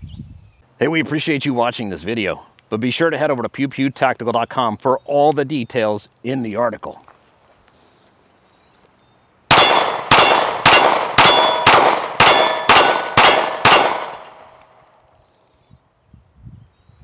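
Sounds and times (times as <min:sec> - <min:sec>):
pistol shots: 0:09.5 - 0:14.8.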